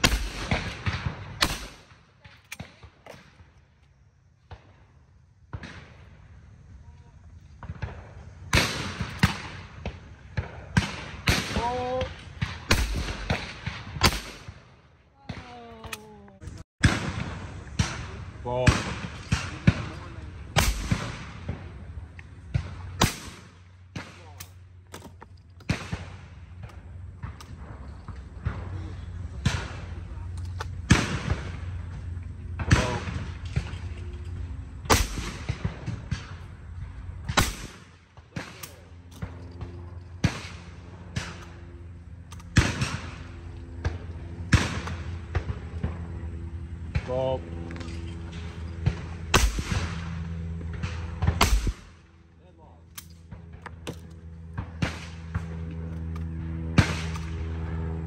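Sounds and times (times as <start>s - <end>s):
shotgun shots: 0.0s - 3.4s, 7.6s - 16.0s, 16.8s - 33.9s, 34.8s - 36.5s, 37.2s - 41.7s, 42.3s - 46.1s, 48.3s - 52.2s, 53.0s - 55.6s, 56.7s - 57.6s.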